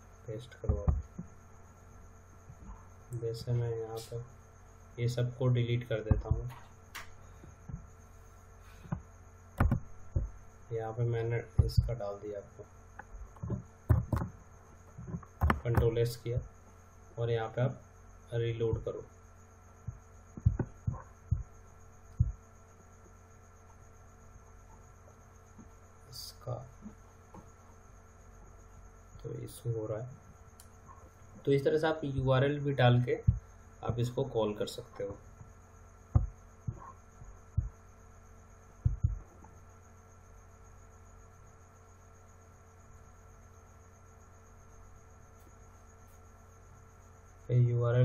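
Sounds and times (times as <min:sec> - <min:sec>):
low electrical hum: 0:00.0 - 0:48.0
soft low thumps: 0:00.5 - 0:01.5, 0:05.9 - 0:06.6, 0:07.3 - 0:08.0, 0:08.8 - 0:16.6, 0:18.5 - 0:19.0, 0:19.8 - 0:23.3, 0:32.1 - 0:39.7.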